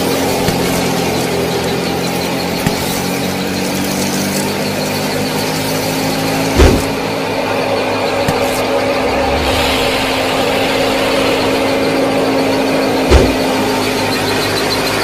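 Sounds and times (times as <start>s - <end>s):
small motor running: 0.0s - 8.7s
loud low thump: 8.3s - 13.6s.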